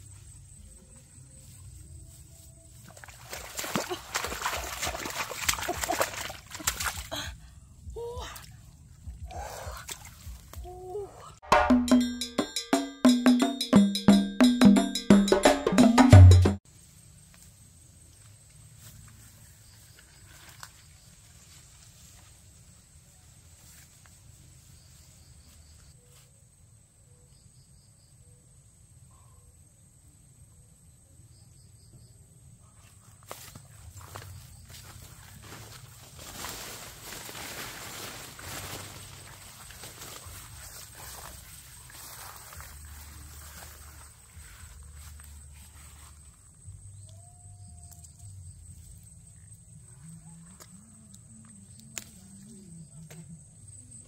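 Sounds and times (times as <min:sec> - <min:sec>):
hands splashing in muddy water: 0:02.9 - 0:07.1
footsteps through undergrowth: 0:17.1 - 0:26.3, 0:33.0 - 0:46.9
insect drone: 0:33.9 - 0:54.0.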